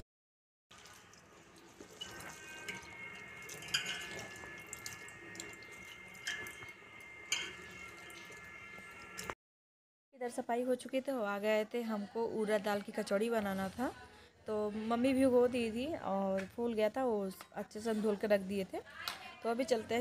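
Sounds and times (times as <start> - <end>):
water sloshing: 0.7 - 9.3
light clinks against steel bowl: 3.5 - 5.6.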